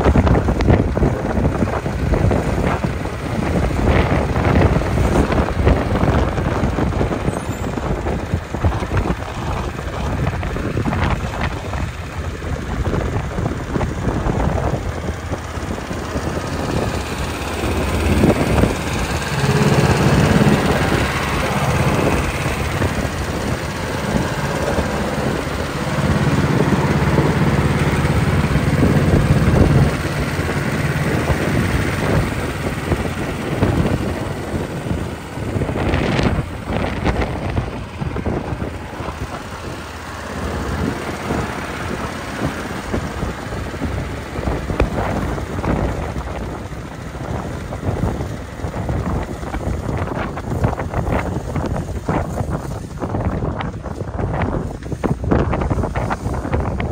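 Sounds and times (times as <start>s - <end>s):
tractor engine running: 0.0s - 56.9s.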